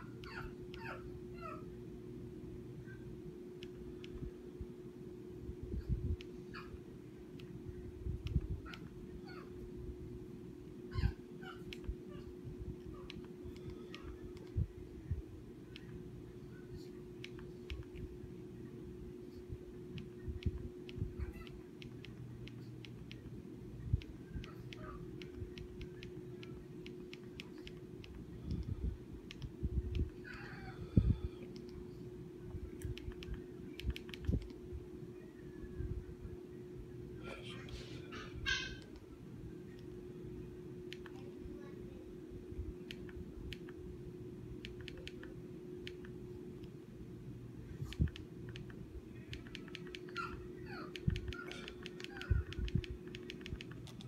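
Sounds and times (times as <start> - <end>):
steady low hum: 0.0 - 54.0
remote buttons clicking: 3.5 - 4.3, 7.2 - 7.6, 11.6 - 12.0, 12.8 - 14.6, 15.6 - 16.1, 17.1 - 18.2, 19.8 - 30.3, 31.4 - 31.9, 32.6 - 34.6, 38.8 - 40.0, 40.8 - 41.3, 42.8 - 43.8, 44.6 - 46.8, 47.9 - 54.0.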